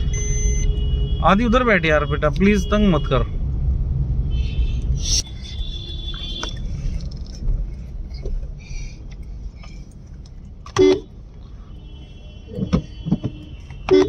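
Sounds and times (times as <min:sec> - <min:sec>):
car horn honk: 0:00.0 - 0:03.3, 0:04.3 - 0:06.7, 0:10.8 - 0:11.1, 0:11.7 - 0:14.0
engine and road rumble: 0:00.0 - 0:14.0.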